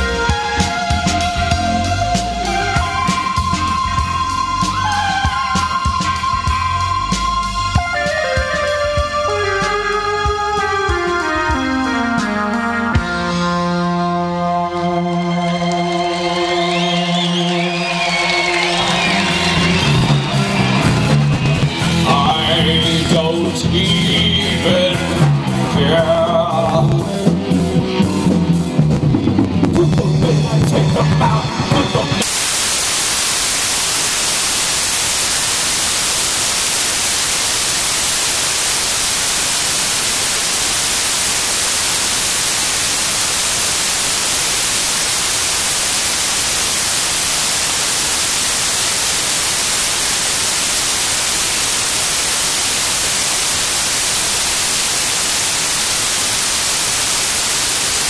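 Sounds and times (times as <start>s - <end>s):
loud static hiss: 0.0s - 12.4s, 15.4s - 58.0s
song with drums: 0.0s - 13.5s, 18.1s - 32.3s.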